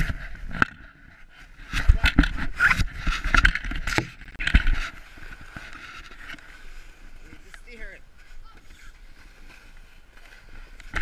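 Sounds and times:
plastic sled sliding over snow: 0:00.0 - 0:11.0
footsteps crunching in snow: 0:04.7 - 0:11.0.

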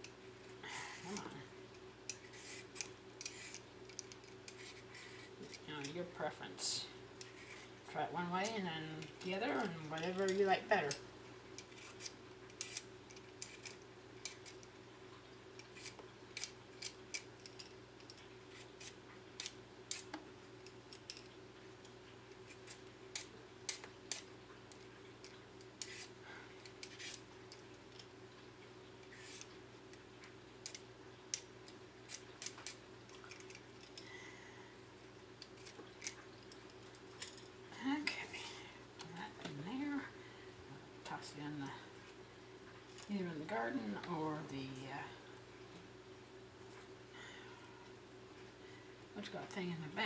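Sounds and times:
faint steady hum: 0:00.0 - 0:50.0
blade scraping cucumber skin: 0:02.1 - 0:05.3, 0:11.6 - 0:14.6, 0:25.8 - 0:27.3.

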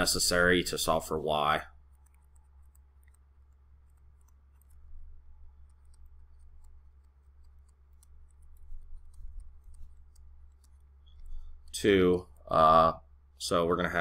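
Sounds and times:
low hum: 0:00.0 - 0:14.0
stylus tapping on tablet screen: 0:01.8 - 0:11.7.

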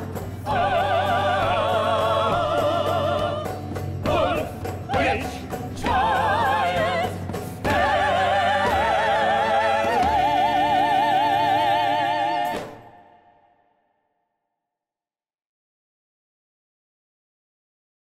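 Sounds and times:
band accompaniment: 0:00.0 - 0:13.0
operatic singing: 0:00.0 - 0:13.7.

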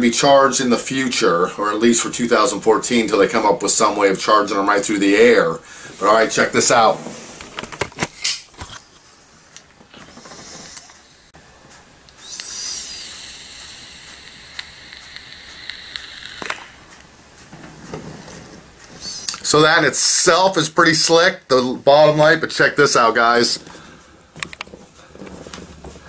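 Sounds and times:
breathy exhale: 0:05.6 - 0:06.0
e-cigarette draw hiss: 0:10.1 - 0:11.3, 0:12.2 - 0:16.8.

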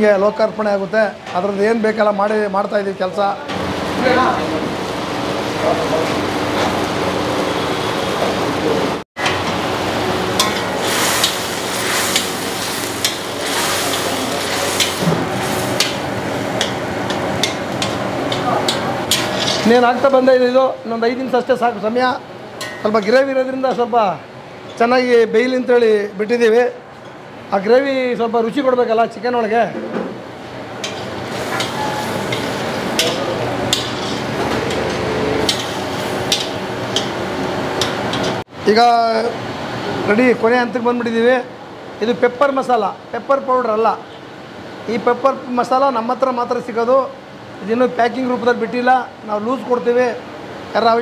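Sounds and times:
gravy sizzling: 0:09.6 - 0:20.0, 0:30.4 - 0:38.4
chicken sizzling in gravy: 0:10.5 - 0:16.0.

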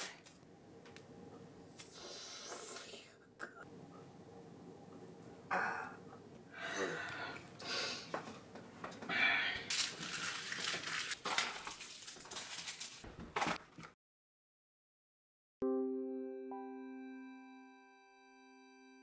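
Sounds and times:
paper wrappers rustling and crinkling: 0:09.6 - 0:14.0.

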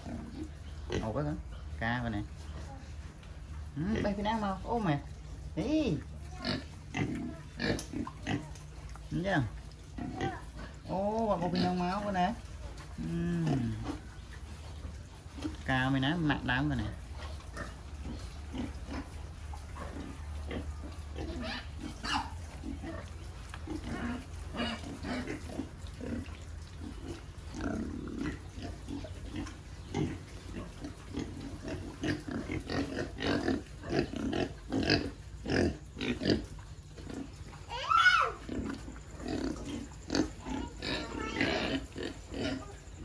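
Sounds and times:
pigs grunting and snuffling: 0:00.0 - 0:43.0
pig squealing: 0:19.7 - 0:23.2, 0:37.1 - 0:43.0.

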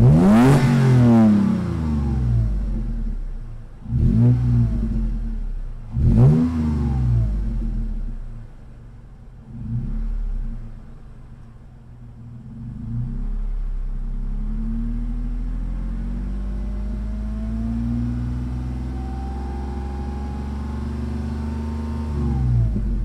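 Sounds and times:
engine revving in throttle blips: 0:00.0 - 0:08.5, 0:09.4 - 0:23.0
engine idling low: 0:00.0 - 0:17.5, 0:22.1 - 0:23.0.

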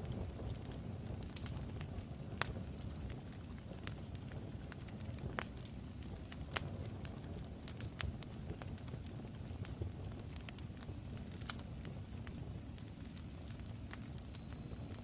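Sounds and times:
fire crackling: 0:00.0 - 0:15.0
faint high whistle: 0:09.1 - 0:15.0.

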